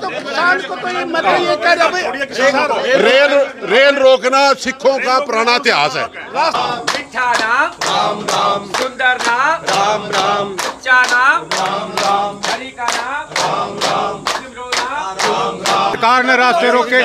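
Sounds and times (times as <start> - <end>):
men singing together: 6.2 - 17.0
hands clapping in steady beat: 6.5 - 16.4.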